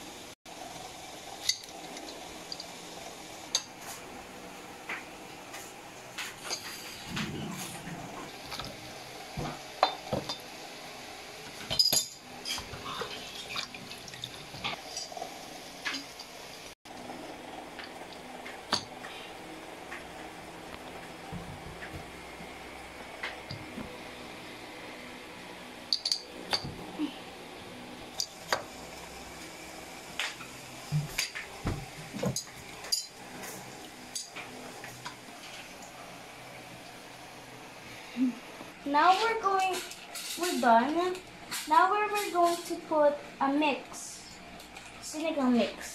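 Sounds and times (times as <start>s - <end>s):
kitchenware clattering: 11.5s - 15.2s, 25.9s - 26.8s.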